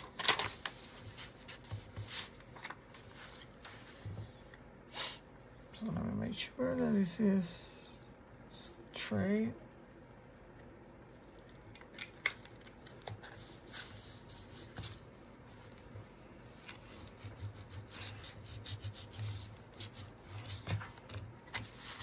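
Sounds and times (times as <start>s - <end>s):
burnishing tool rubbing paper: 13.4s - 20.9s.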